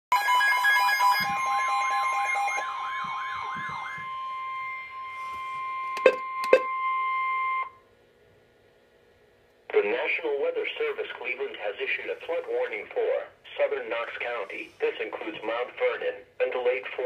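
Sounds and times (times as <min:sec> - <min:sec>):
warbling siren sweep: 0:00.1 - 0:07.6
steady warning tone: 0:00.1 - 0:07.8.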